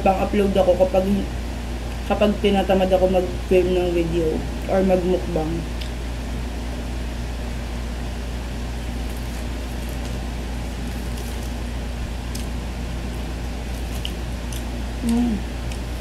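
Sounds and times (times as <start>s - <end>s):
low mechanical hum: 0.0s - 16.0s
paper wrappers rustling: 8.9s - 11.6s.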